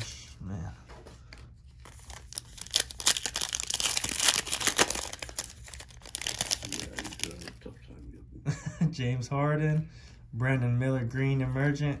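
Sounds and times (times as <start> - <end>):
plastic wrapper crinkling: 1.8 - 7.6.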